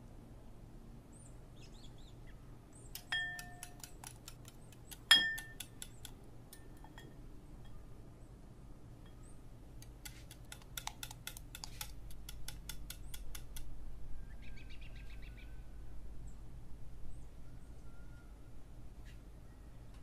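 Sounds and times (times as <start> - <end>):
low steady hum: 0.0 - 20.0
whisk clinking against glass bowl: 3.0 - 4.3, 5.0 - 5.9
faint bird chirps: 9.1 - 9.5, 14.0 - 20.0.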